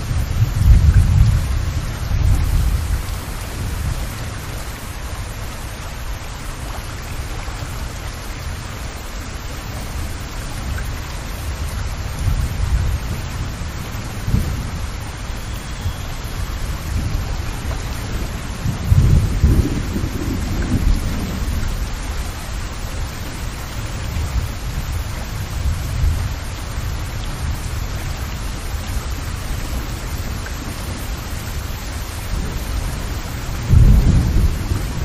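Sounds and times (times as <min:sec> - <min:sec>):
heavy rain splashing on street: 0:00.0 - 0:35.0.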